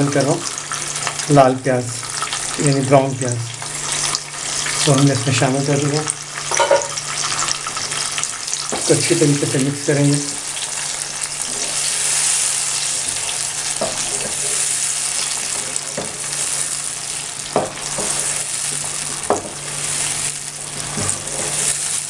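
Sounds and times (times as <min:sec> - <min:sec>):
food sizzling in hot oil: 0:00.0 - 0:22.0
wooden spoon knocking on pan: 0:06.5 - 0:07.0, 0:17.5 - 0:18.2, 0:19.3 - 0:19.6.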